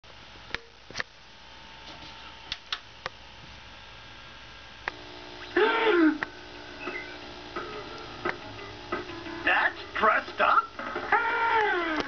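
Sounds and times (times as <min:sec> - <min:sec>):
faint steady television tone: 0:04.8 - 0:12.0.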